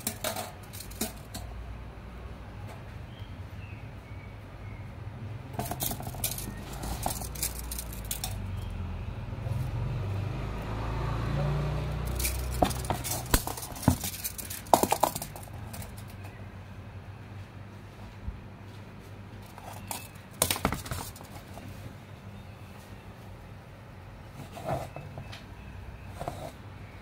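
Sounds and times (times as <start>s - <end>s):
light metallic rattles: 0.0s - 1.6s, 5.5s - 8.8s, 11.8s - 16.4s, 19.4s - 21.8s.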